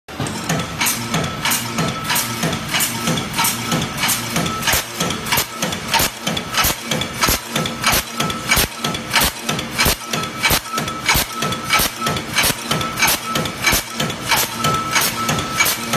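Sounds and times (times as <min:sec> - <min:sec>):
punch press stamping: 0:00.1 - 0:15.9
steady machine hum: 0:00.1 - 0:15.9.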